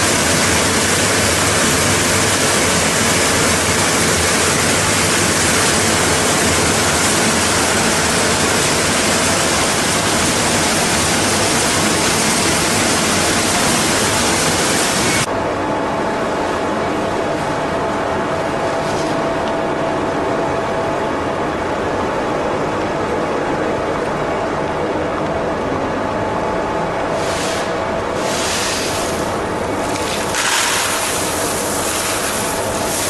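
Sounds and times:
machine rushing hiss: 27.2 - 29.4.

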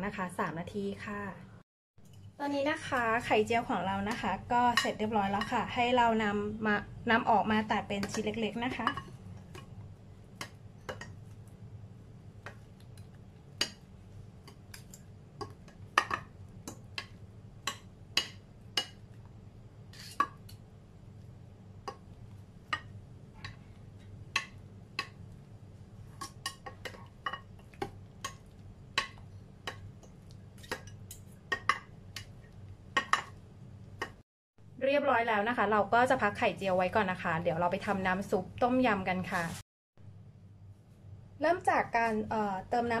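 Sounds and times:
fork scraping glass dish: 19.9 - 20.4.

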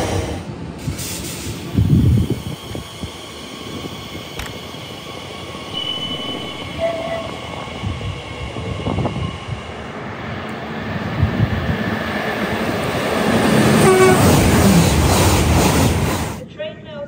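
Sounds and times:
electric train moving: 0.0 - 16.4
train approaching: 0.0 - 16.5
train horn: 5.8 - 7.3, 13.8 - 14.4.

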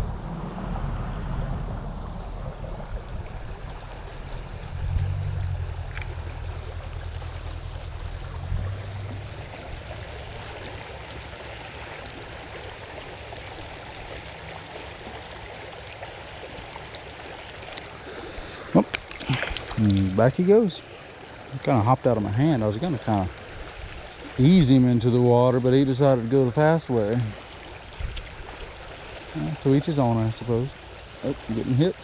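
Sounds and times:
low rumble: 0.0 - 14.0
creek water running: 1.5 - 32.0.

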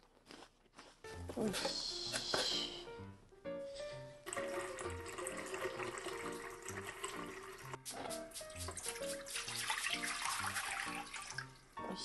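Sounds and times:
background music: 1.0 - 12.0
tap water running into jug: 4.2 - 11.7.

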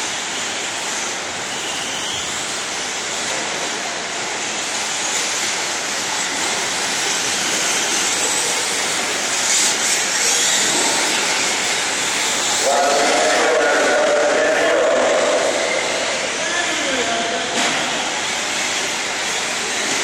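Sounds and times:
toy truck motors and tyres rushing: 0.6 - 14.1.

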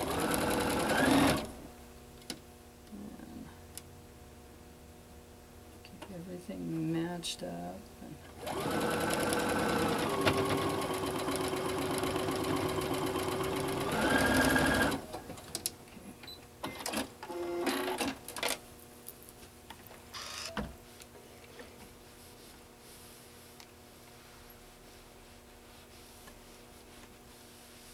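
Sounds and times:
sewing machine motor whining: 8.4 - 15.0.

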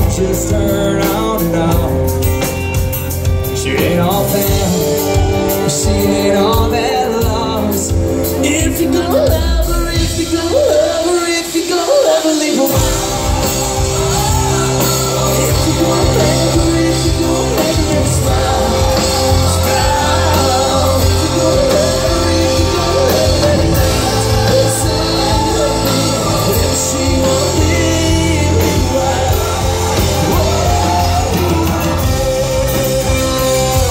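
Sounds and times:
country-rock band playing: 0.0 - 33.9
man singing: 0.0 - 33.9.

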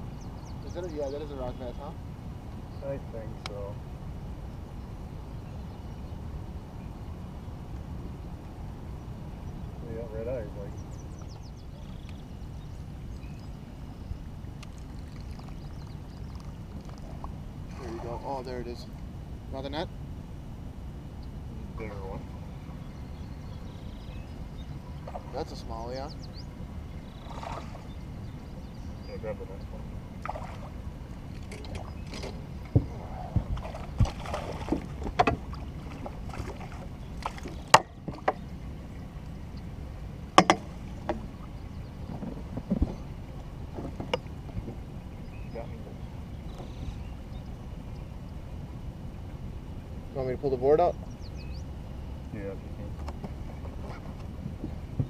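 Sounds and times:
wind and water rumble: 0.0 - 55.0
faint bird chirps: 9.0 - 16.6, 21.1 - 30.6, 44.1 - 52.9.

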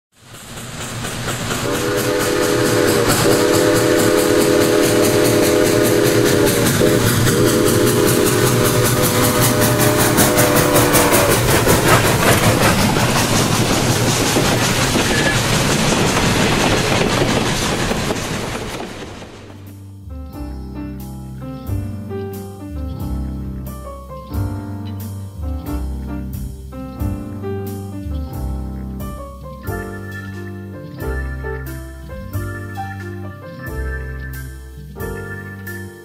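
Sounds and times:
train running: 0.1 - 19.7, 23.3 - 36.0
steam locomotive chime whistle: 1.5 - 16.7, 29.6 - 36.0.

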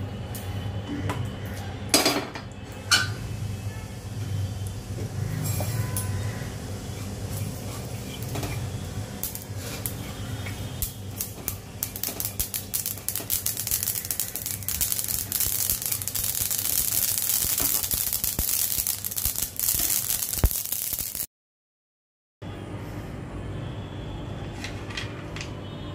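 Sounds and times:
sesame seeds crackling in a pan: 5.6 - 21.3
spatula stirring in a pan: 6.4 - 20.0.

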